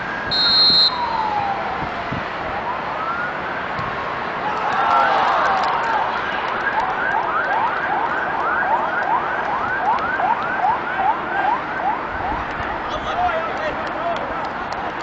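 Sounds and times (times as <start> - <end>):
siren rising sweeps: 0.0 - 4.5, 6.6 - 12.6
steady background noise: 0.0 - 15.0.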